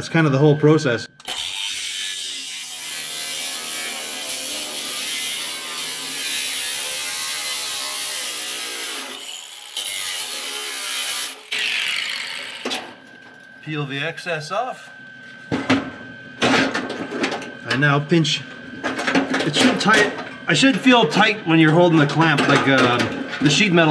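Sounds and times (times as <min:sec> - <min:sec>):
power tool cutting sheet metal: 0:01.2 - 0:13.2.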